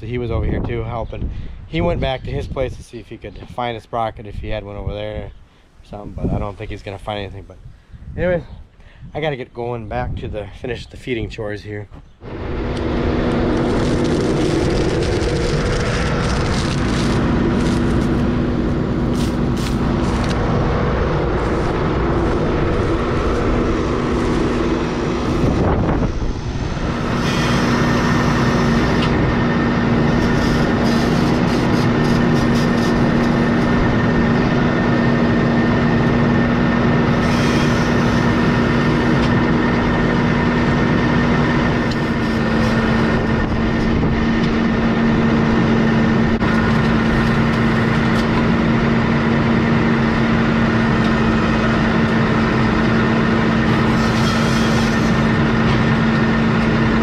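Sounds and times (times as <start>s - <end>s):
tractor diesel engine running: 12.2s - 57.0s.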